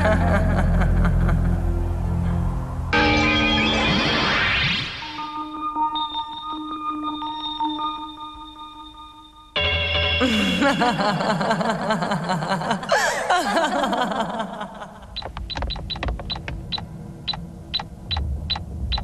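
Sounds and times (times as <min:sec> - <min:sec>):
woman laughing villainously: 0:00.0 - 0:01.6, 0:10.2 - 0:15.2
dramatic music: 0:00.0 - 0:08.7.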